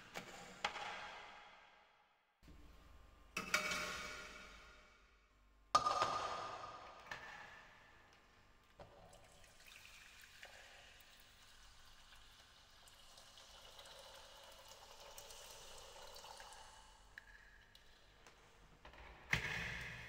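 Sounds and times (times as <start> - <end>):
water pouring into saucepan: 9.1 - 17.0.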